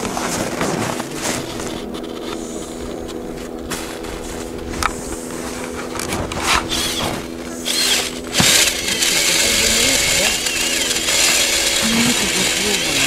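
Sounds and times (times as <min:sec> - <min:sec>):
ice auger scraping and crunching: 0:00.0 - 0:13.0
low hum: 0:00.0 - 0:13.0.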